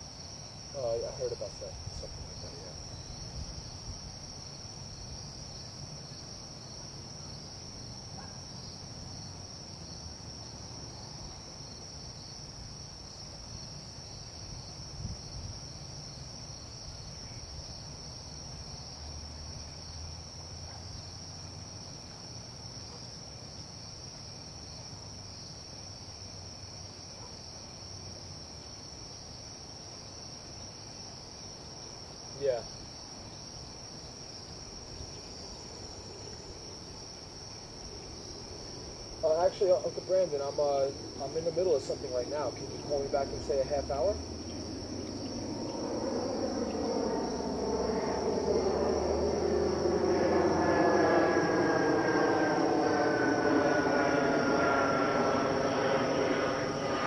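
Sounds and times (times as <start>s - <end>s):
crickets trilling: 0.0s - 57.0s
low background rumble: 42.6s - 57.0s.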